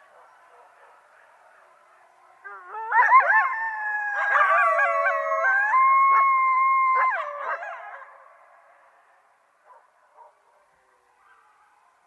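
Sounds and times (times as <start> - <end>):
coyotes howling: 0.0 - 8.4.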